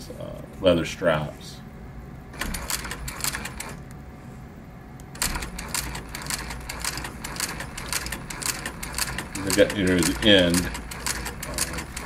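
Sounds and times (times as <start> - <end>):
sewing machine stitching leather: 2.4 - 3.8, 5.2 - 12.0.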